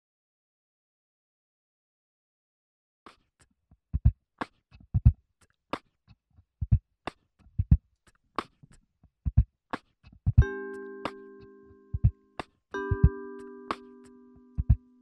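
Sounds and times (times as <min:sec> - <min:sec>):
beatboxed snare sounds: 0:03.1 - 0:05.2, 0:06.6 - 0:10.4
beatboxed kick sounds: 0:04.8 - 0:05.2, 0:06.6 - 0:06.8, 0:07.6 - 0:07.8, 0:09.3 - 0:10.5, 0:14.6 - 0:14.8.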